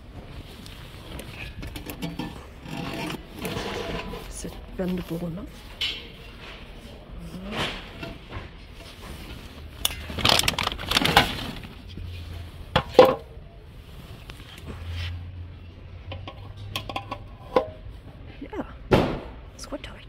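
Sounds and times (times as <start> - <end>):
plastic hose rustling and scraping: 0.0 - 15.5.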